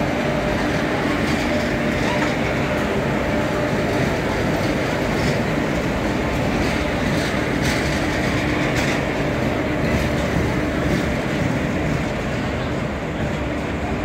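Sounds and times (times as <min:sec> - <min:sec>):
constant hum: 0:00.0 - 0:14.0
electric locomotive running: 0:00.0 - 0:14.0.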